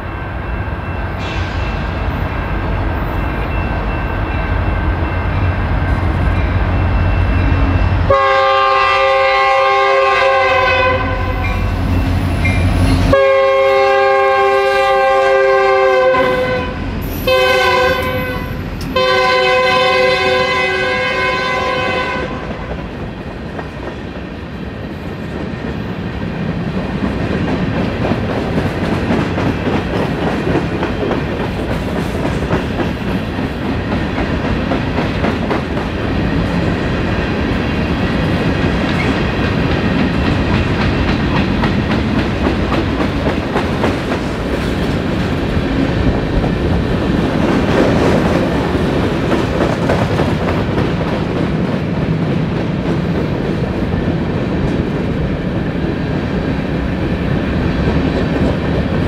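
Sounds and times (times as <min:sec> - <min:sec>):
passing train rumble: 0:00.0 - 0:59.0
train horn chord: 0:07.7 - 0:11.7, 0:13.0 - 0:22.7
train wheels clicking on rail joints: 0:25.0 - 0:55.2, 0:56.3 - 0:59.0.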